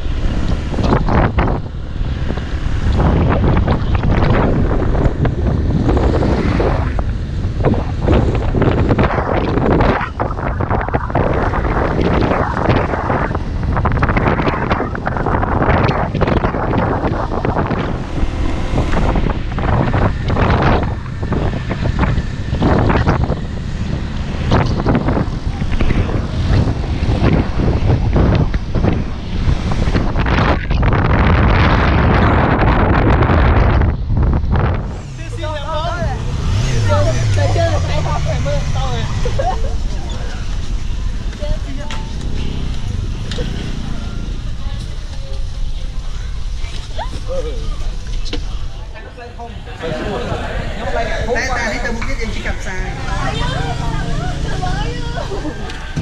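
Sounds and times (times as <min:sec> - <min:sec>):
motorcycle engine and road noise: 0:00.0 - 0:56.0
truck passing: 0:00.0 - 0:56.0
wind buffeting microphone: 0:00.0 - 0:56.0.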